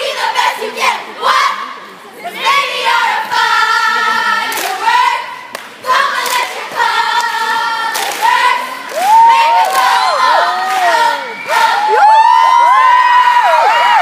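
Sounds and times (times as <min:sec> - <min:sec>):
girls shouting a chant: 0:00.0 - 0:12.0
sharp claps: 0:05.5 - 0:06.5, 0:07.1 - 0:09.9
whoops: 0:09.0 - 0:14.0.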